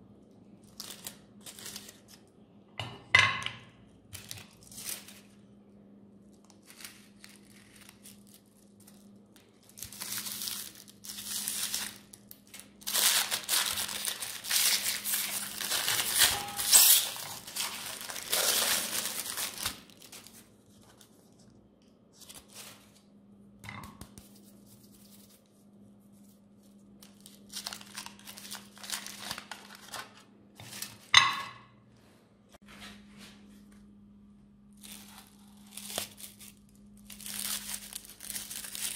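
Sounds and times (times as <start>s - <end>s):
cellophane wrapper crinkling and tearing: 0.5s - 2.3s, 4.1s - 5.4s, 6.2s - 21.4s, 22.1s - 23.0s, 26.2s - 31.1s, 34.6s - 38.9s.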